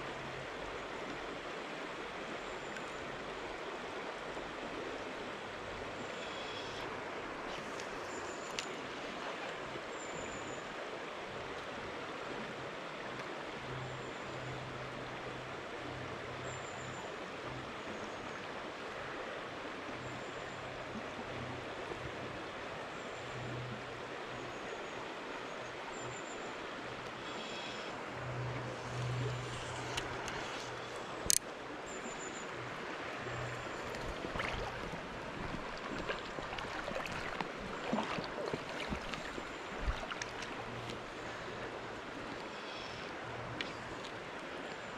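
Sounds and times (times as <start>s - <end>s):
river water rushing: 25.0s - 44.9s.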